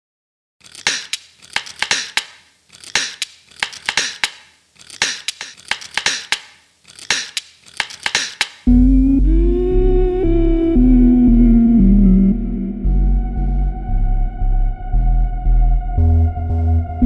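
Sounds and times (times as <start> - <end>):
sharp clicks: 0.6 - 8.7.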